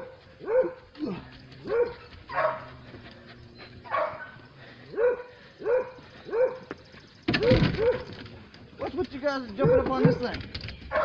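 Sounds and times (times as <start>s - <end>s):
hounds barking: 0.0s - 0.9s, 1.6s - 6.8s, 7.4s - 8.2s, 9.6s - 10.3s.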